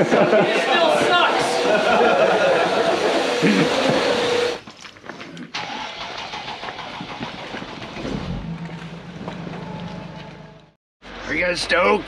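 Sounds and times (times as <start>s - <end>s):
vehicle engine starting and idling: 5.6s - 11.5s.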